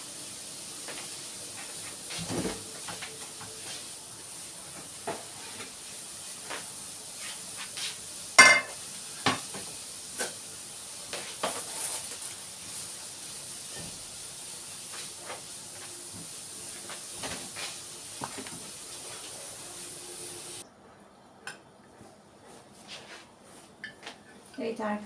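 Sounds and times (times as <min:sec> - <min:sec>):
cabbage sizzling in oil: 0:00.0 - 0:20.6
spatula scraping and knocking pan: 0:08.4 - 0:09.4.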